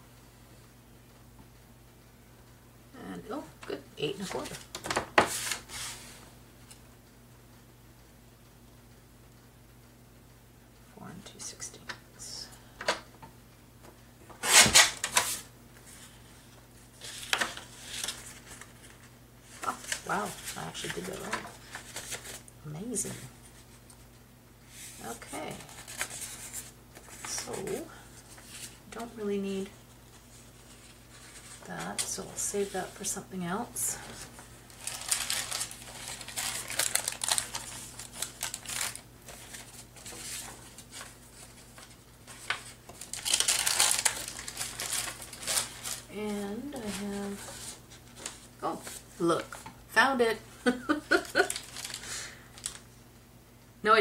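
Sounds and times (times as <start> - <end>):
paper rustling: 4.2 - 6.8, 14.3 - 22.4, 24.7 - 33.1, 34.0 - 49.7, 51.1 - 52.8.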